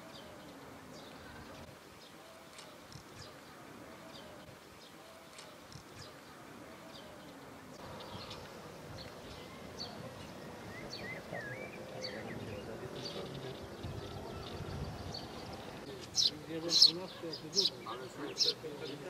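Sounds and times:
low outdoor background noise: 0.0s - 19.0s
small birds chirping: 0.0s - 19.0s.

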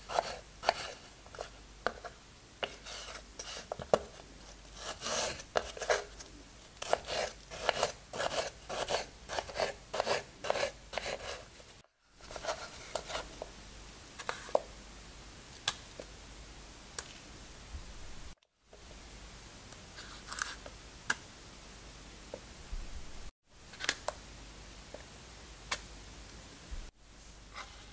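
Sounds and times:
knife cutting on cutting board: 4.8s - 6.2s, 6.8s - 11.4s.

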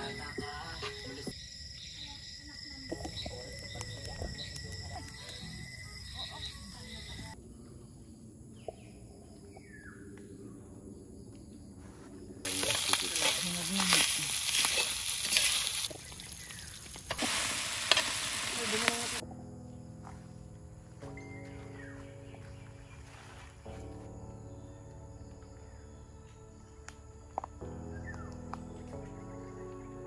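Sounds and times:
rice sizzling in a pan: 12.5s - 19.2s.

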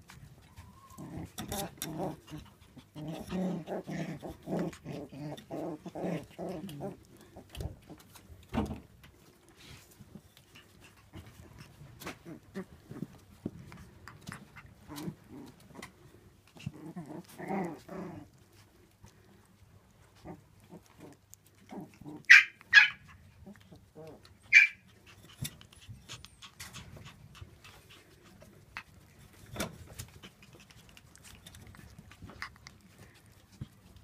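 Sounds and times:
puppy grumbling: 0.8s - 8.3s, 10.3s - 34.0s
puppies scrabbling and knocking: 7.5s - 9.3s, 25.3s - 33.9s
puppies yapping: 22.2s - 23.3s, 24.4s - 28.2s.

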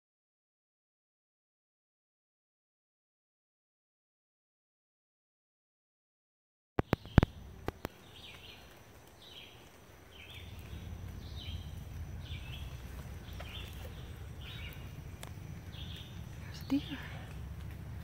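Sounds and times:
sharp clicks: 6.8s - 9.2s
bird calling: 6.8s - 18.0s
low rumble on microphone: 6.8s - 18.0s.

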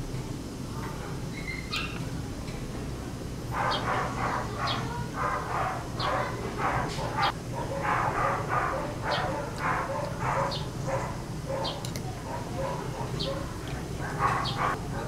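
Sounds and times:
dog barking: 3.5s - 15.0s.

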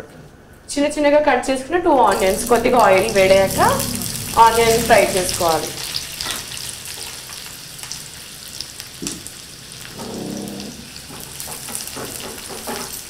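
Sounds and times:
onions sizzling in oil: 2.1s - 13.0s.

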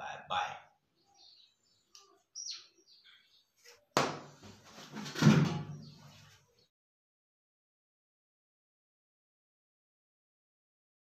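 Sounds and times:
sharp knock: 4.0s - 4.3s
heavy thump with scraping: 4.0s - 5.8s.

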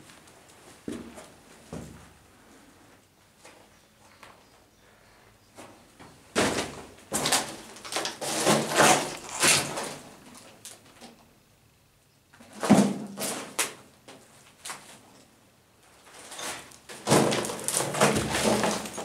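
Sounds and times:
loud scrapes and knocks: 6.4s - 10.0s, 16.2s - 19.0s.

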